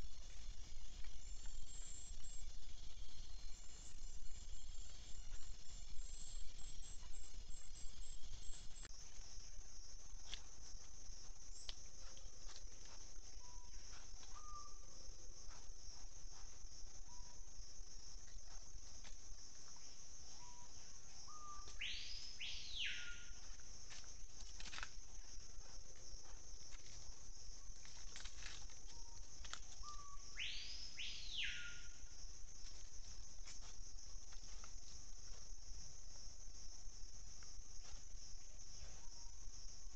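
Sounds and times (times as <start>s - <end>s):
high-pitched insect chorus: 0.0s - 39.9s
bird whistling call: 21.3s - 23.2s, 29.9s - 31.9s.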